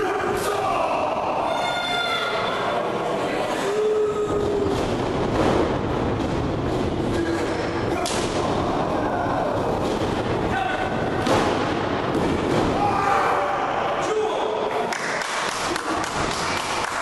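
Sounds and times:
crowd shouting and cheering: 0.0s - 3.1s, 12.6s - 17.0s.

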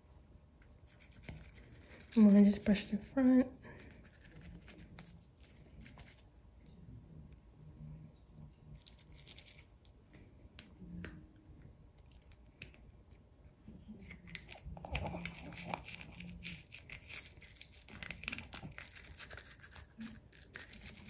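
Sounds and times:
toothbrush scrubbing teeth: 0.9s - 2.9s, 3.7s - 6.2s, 14.0s - 21.0s.

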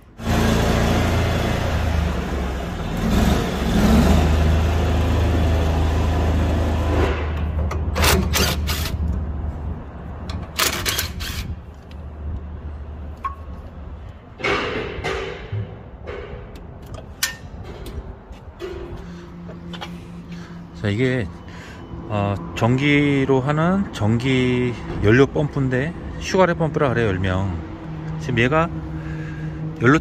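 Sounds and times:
tractor diesel engine running: 0.0s - 15.4s.

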